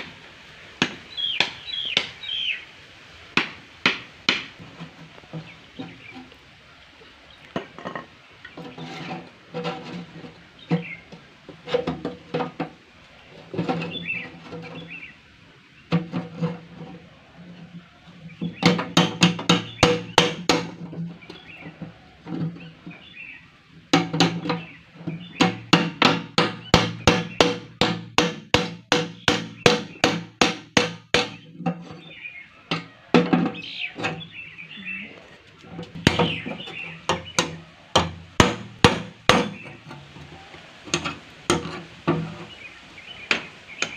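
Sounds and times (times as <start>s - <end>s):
hammer striking metal: 36.0s - 39.7s.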